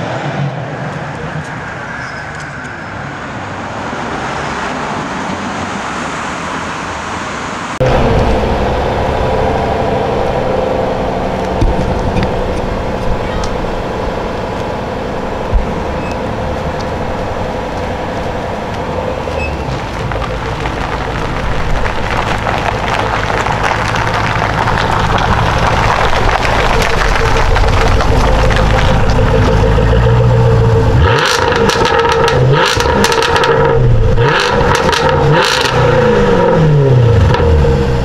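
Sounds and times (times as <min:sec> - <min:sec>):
city street traffic: 0:00.0 - 0:38.0
sports car engine idling: 0:07.8 - 0:35.2.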